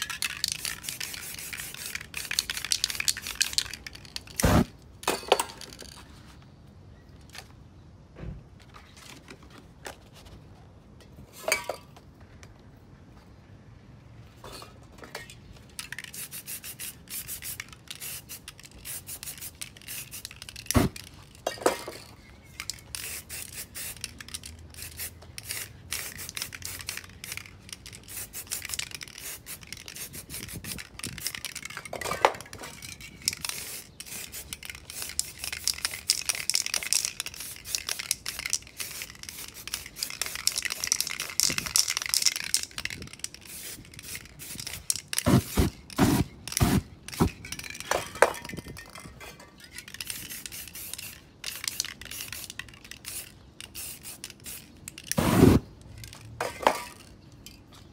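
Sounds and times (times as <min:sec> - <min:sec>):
spray paint can hissing: 0:00.0 - 0:04.7, 0:15.8 - 0:21.1, 0:22.6 - 0:31.8, 0:33.0 - 0:47.8, 0:49.8 - 0:55.7
cans and caps clinking: 0:00.0 - 0:06.0, 0:11.4 - 0:12.0, 0:14.4 - 0:57.6.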